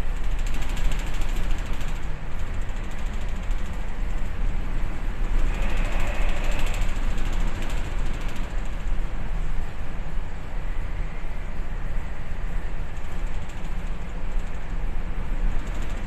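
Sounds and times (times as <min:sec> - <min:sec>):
ship engine rumble and hum: 0:01.2 - 0:16.0.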